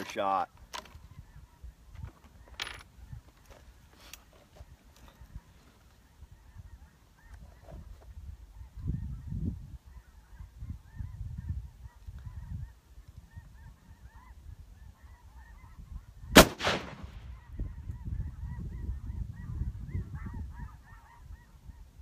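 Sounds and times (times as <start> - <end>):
rifle shot with echo: 16.3 - 17.3.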